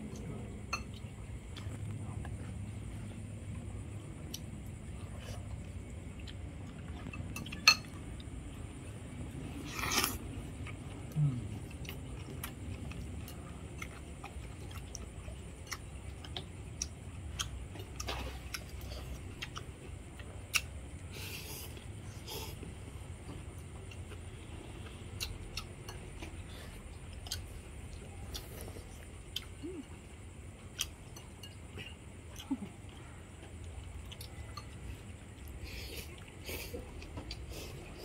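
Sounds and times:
low steady hum: 0.0s - 38.0s
utensils clinking on ceramic bowls: 7.4s - 8.0s.

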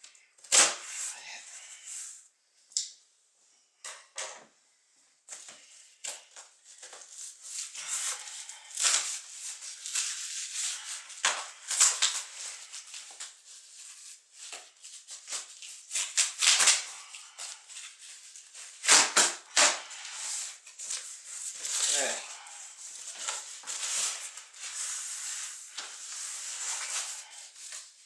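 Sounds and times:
tape tearing: 0.4s - 1.1s, 6.8s - 22.2s, 22.9s - 27.9s.

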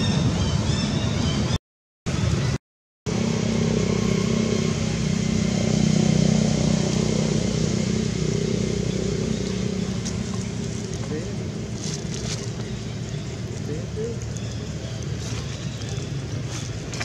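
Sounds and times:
engine humming: 2.1s - 17.0s.

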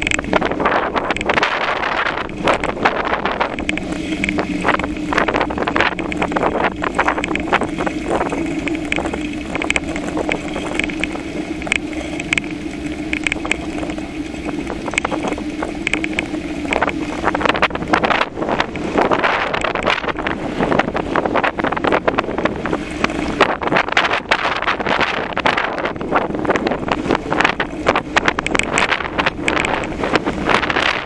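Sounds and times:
bicycle rattling and clicking: 0.0s - 31.0s
steady low hum: 0.0s - 31.0s
wind buffeting microphone: 0.0s - 31.0s.

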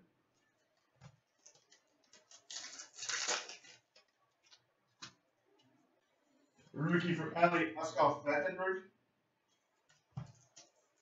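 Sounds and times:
cards rustling: 0.6s - 5.2s.

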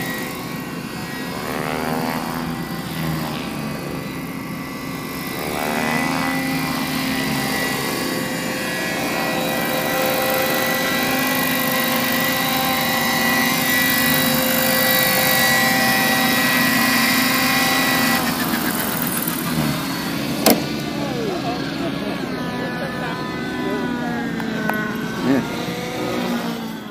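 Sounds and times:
model helicopter motor whine: 0.0s - 26.9s.

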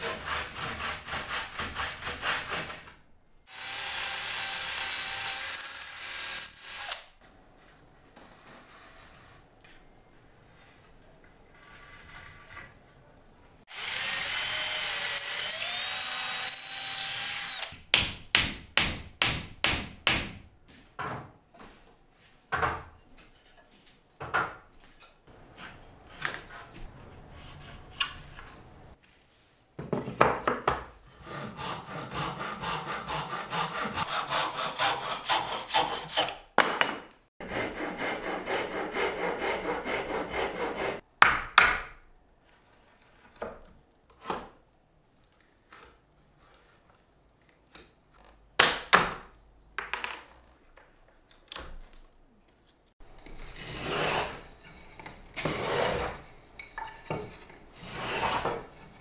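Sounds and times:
handsaw cutting wood: 0.0s - 2.9s, 13.7s - 17.8s, 31.2s - 36.4s, 37.4s - 41.0s, 53.4s - 54.5s, 55.4s - 56.2s, 57.8s - 59.0s
cordless drill boring into wood: 3.5s - 7.1s, 13.7s - 17.8s.

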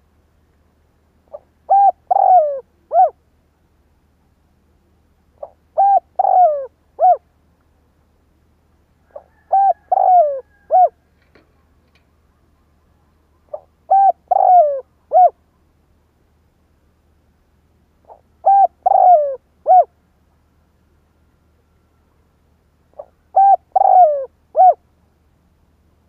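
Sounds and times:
dove cooing: 1.3s - 3.2s, 5.4s - 7.3s, 9.0s - 11.0s, 12.3s - 15.4s, 18.0s - 19.9s, 22.9s - 24.8s.

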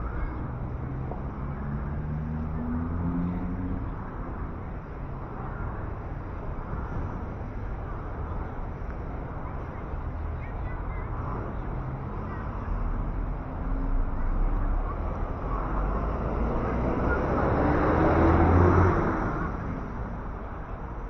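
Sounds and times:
vehicle passing: 0.0s - 20.8s.

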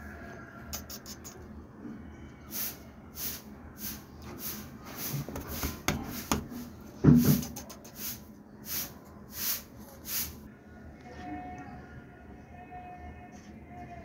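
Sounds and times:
kitten hissing: 0.7s - 1.4s, 7.2s - 10.4s.

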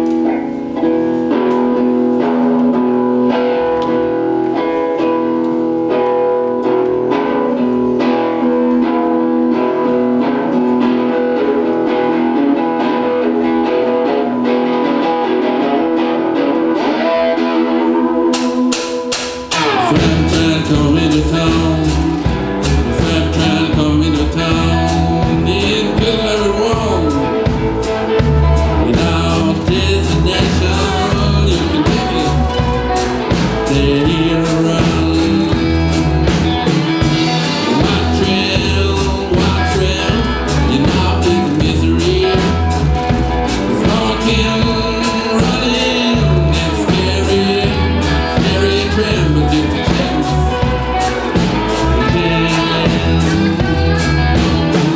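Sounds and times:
electric guitars: 0.0s - 54.9s
drum kit beat: 18.0s - 54.9s.

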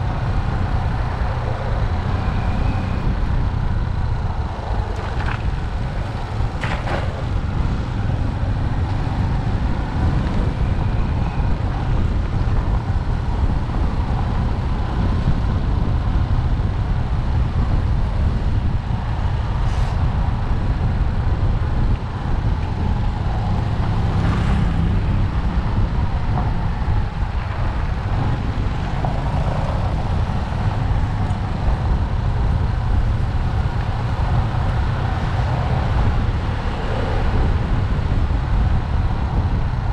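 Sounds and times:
road and wind noise: 0.0s - 39.9s.

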